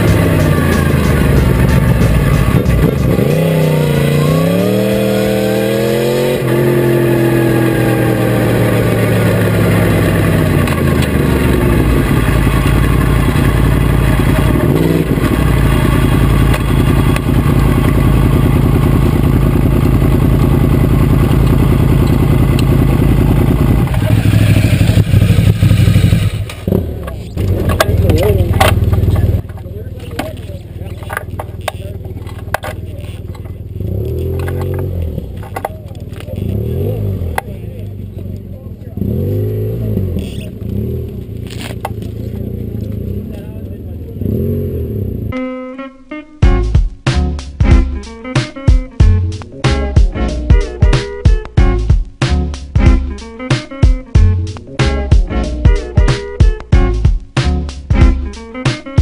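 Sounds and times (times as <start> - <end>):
motorcycle engine revving and idling: 0.0 - 45.4.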